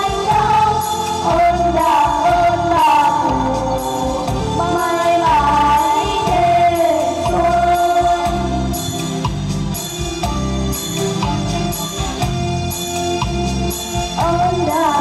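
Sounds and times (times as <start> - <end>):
children singing: 0.0 - 9.2, 13.4 - 15.0
instrumental accompaniment: 0.0 - 15.0.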